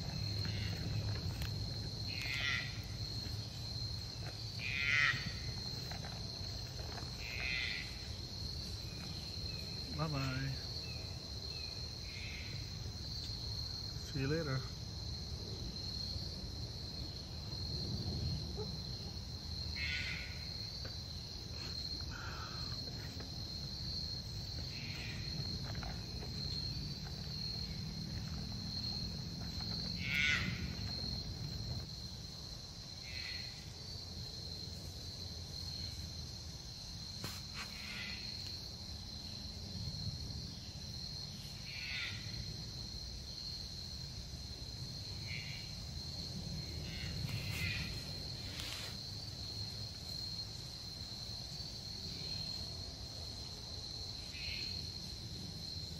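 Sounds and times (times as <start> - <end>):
insect chorus drone: 0.0 - 55.9.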